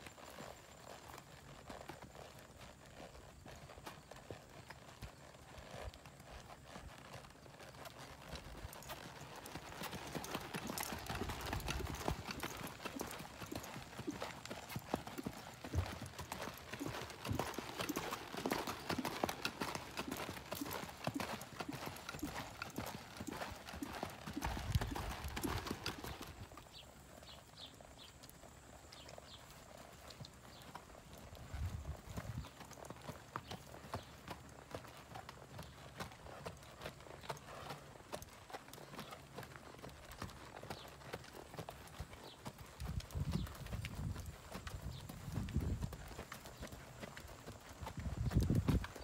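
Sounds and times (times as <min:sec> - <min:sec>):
hoofbeats on dirt: 0:00.0 - 0:49.0.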